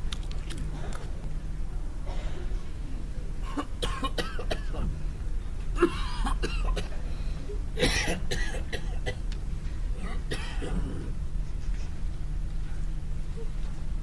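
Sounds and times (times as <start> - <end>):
person coughing: 3.4 - 4.9, 5.8 - 7.0, 7.8 - 9.2, 10.0 - 11.1.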